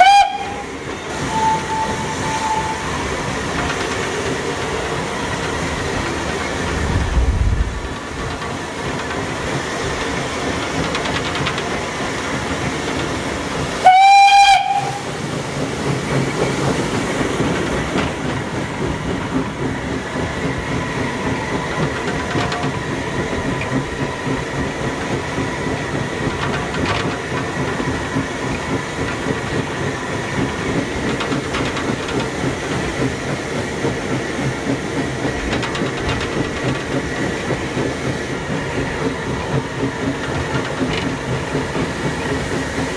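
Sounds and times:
steam whistle blast: 0.0s - 3.0s, 13.8s - 15.2s
steam locomotive running: 0.0s - 42.9s.

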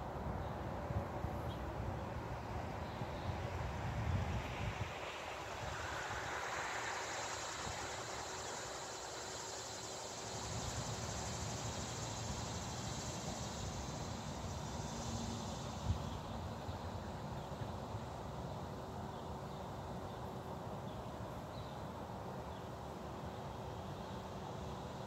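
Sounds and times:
high insect buzz: 4.1s - 16.5s.

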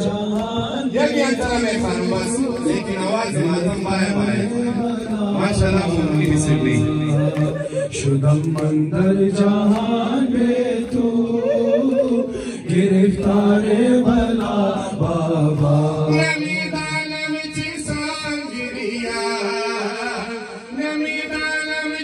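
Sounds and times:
crowd of men chanting: 0.0s - 16.5s
lead singer's voice: 0.0s - 22.0s.

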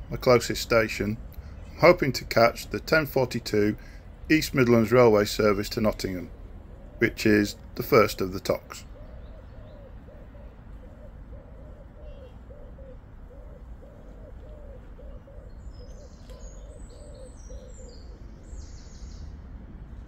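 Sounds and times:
small birds chirping: 0.0s - 20.0s
pigeon cooing: 8.7s - 18.3s.

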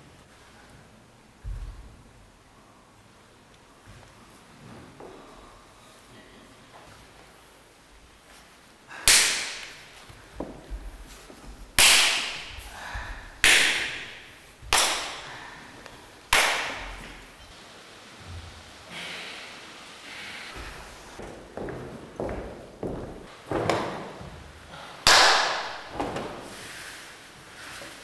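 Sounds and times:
loud sharp cracks: 9.0s - 9.9s, 11.8s - 12.6s, 13.4s - 15.4s, 16.3s - 17.2s, 25.0s - 26.0s.

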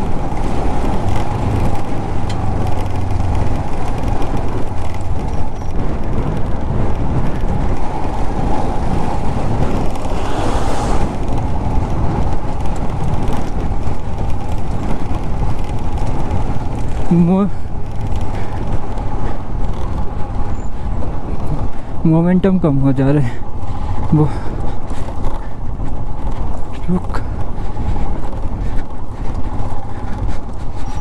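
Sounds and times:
motorcycle engine running: 0.0s - 21.6s
riding wind noise: 0.0s - 31.0s.

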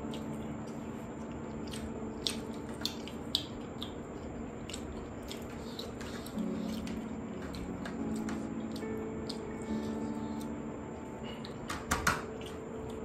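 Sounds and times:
food being chewed: 0.0s - 13.0s.

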